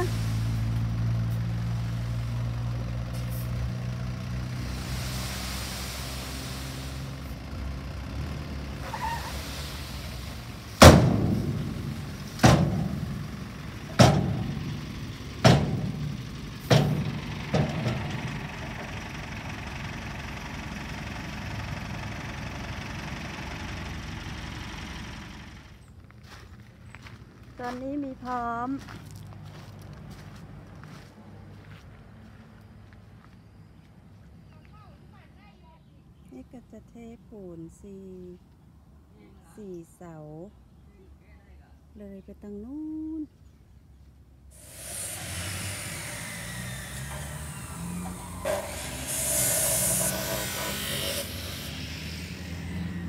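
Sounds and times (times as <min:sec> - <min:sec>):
diesel truck engine running: 0:00.0 - 0:33.9, 0:44.5 - 0:53.0
sand tipping: 0:04.4 - 0:07.4
loud metal bangs: 0:10.7 - 0:14.8, 0:15.4 - 0:18.4.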